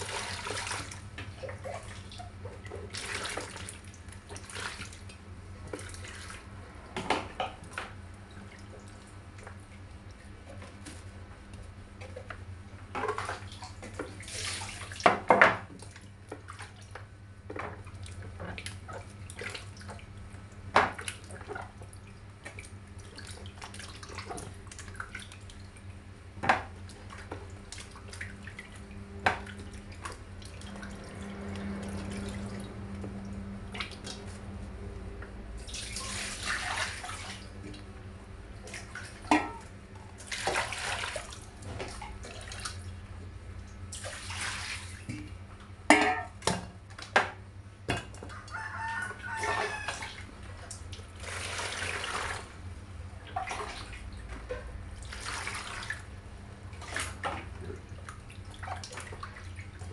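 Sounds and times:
water splashing in a metal pot: 0.0 - 6.5, 12.9 - 16.9, 26.5 - 34.4, 35.6 - 37.8, 38.6 - 42.9, 43.9 - 52.6, 53.2 - 56.1, 56.7 - 59.9
knocks against a pot: 39.3 - 39.6, 45.9 - 48.1.

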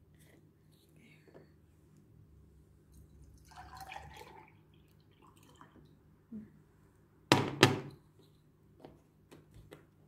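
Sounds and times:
juice pouring into a glass: 3.2 - 5.9.

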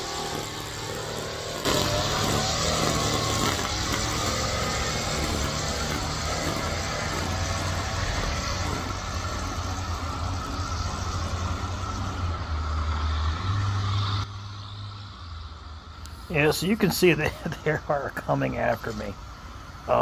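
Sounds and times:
string trimmer engine running: 0.0 - 12.6.

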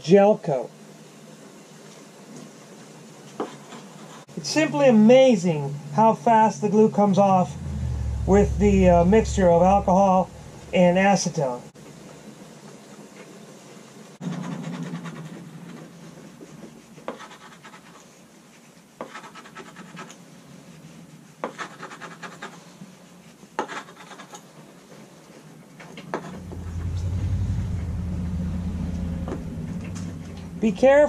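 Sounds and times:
low rumble: 7.2 - 11.7, 26.2 - 31.0.

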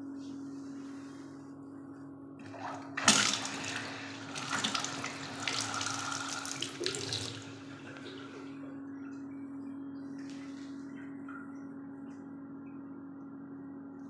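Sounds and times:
tap water running into basin: 2.4 - 8.6.

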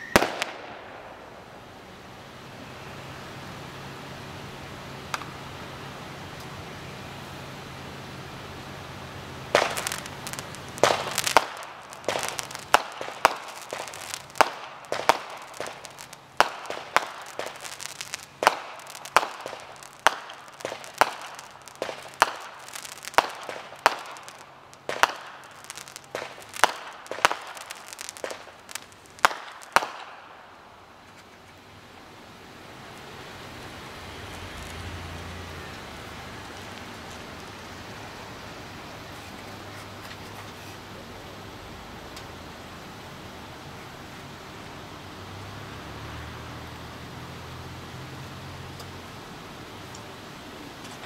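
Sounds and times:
fireworks bangs with echo: 0.0 - 1.7, 9.4 - 30.6.

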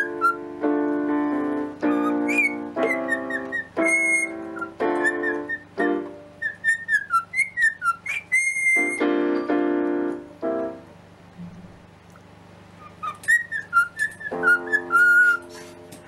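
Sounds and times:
cockatiel whistling: 0.0 - 0.5, 1.8 - 9.1, 12.8 - 15.8
electronic keyboard notes: 0.0 - 6.4, 8.8 - 10.9.

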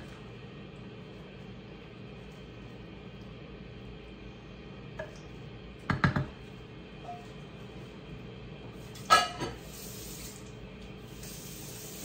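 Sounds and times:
kitchenware knocking: 5.9 - 6.4
kitchenware clattering with ringing: 9.1 - 9.6.

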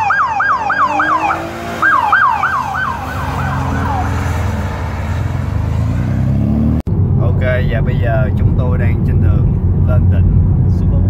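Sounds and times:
siren yelping: 0.0 - 5.2
vehicle engine rumble: 0.0 - 11.0.

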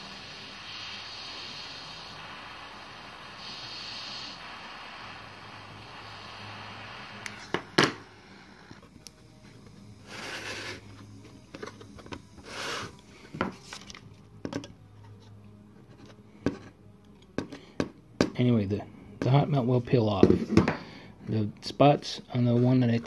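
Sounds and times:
butane torch hissing: 0.0 - 13.8.

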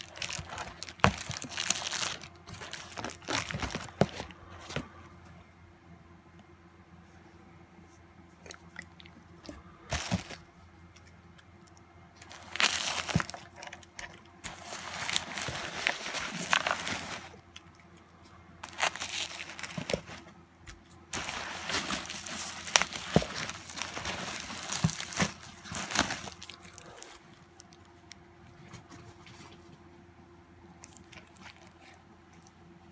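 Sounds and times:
bubble wrap crinkling: 0.0 - 4.8, 9.9 - 10.5, 12.2 - 13.8, 14.4 - 17.5, 18.6 - 20.3, 21.1 - 27.9
packing peanuts rustling: 0.0 - 4.9, 9.9 - 10.5, 12.2 - 17.4, 18.6 - 20.3, 21.1 - 27.8.

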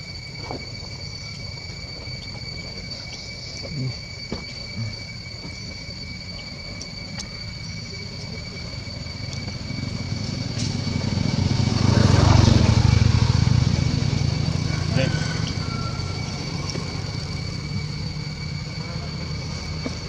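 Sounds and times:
high-pitched insect drone: 0.0 - 20.0
motor engine: 7.5 - 20.0.

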